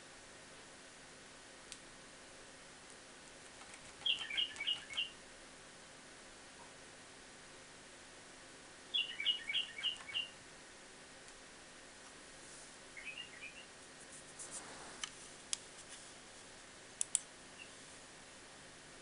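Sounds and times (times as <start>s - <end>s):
sharp clicks: 3.5s - 5.1s, 17.0s - 17.3s
bird chirping: 3.9s - 5.2s, 8.9s - 10.4s, 13.0s - 13.8s.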